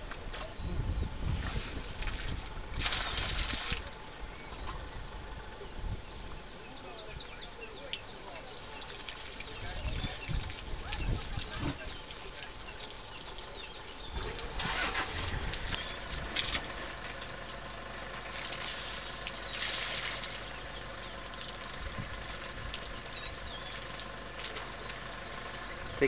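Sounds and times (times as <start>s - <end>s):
elephant spraying water: 1.4s - 4.0s, 8.0s - 26.0s
vehicle engine idling: 3.8s - 26.0s
water dripping: 7.8s - 14.6s, 15.3s - 26.0s.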